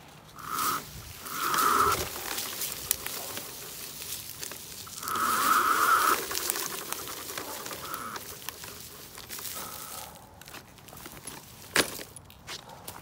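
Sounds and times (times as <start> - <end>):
leaves and twigs crackling: 0.0 - 13.0
electric motors whining: 0.4 - 9.5.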